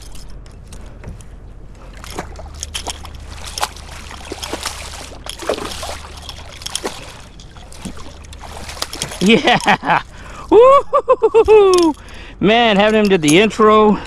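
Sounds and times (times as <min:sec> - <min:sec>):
fish splashing at water surface: 0:01.9 - 0:10.3.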